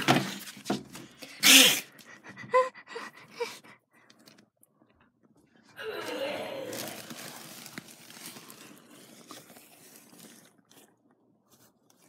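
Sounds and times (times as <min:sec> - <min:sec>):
person's breathy vocal outburst: 0:05.8 - 0:07.1.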